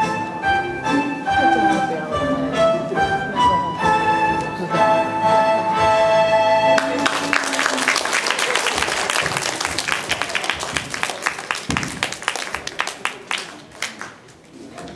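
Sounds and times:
audience applause: 6.8 - 14.4.

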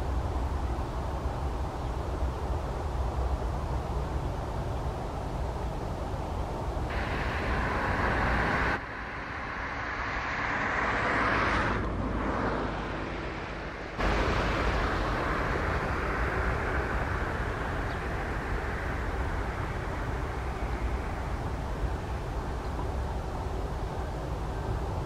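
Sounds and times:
distant traffic rumble and hiss: 0.0 - 25.0
vehicle passing: 6.9 - 22.6.

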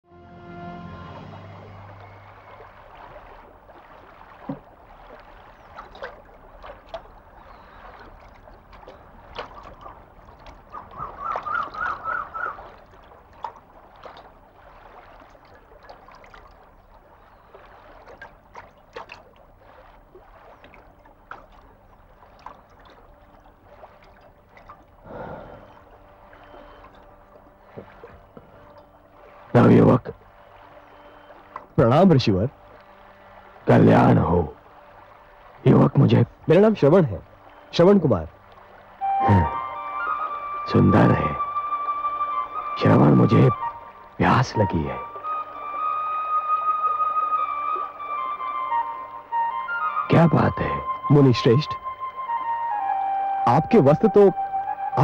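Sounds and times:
high warbling trill: 0.0 - 3.1
water splashing by hand: 1.0 - 48.9.

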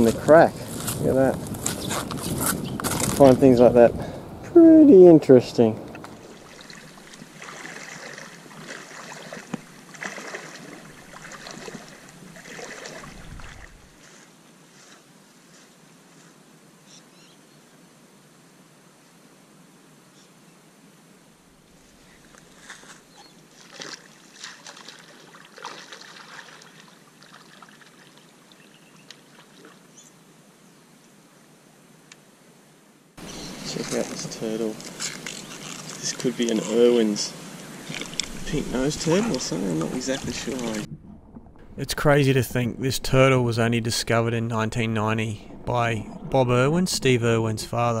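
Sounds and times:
footsteps wading in water: 5.9 - 15.0, 22.2 - 29.9, 37.6 - 42.2.

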